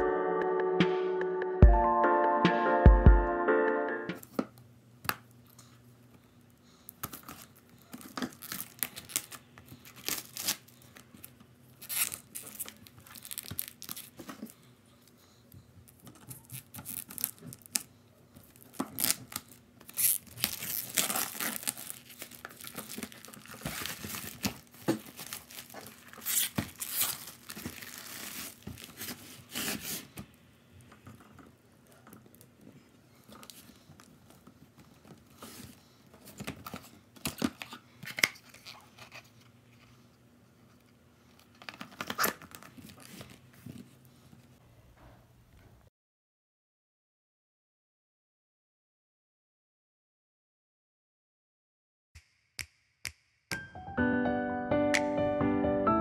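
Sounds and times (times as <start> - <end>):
packaging tearing and crinkling: 7.0 - 14.5, 15.9 - 30.1, 41.4 - 43.4.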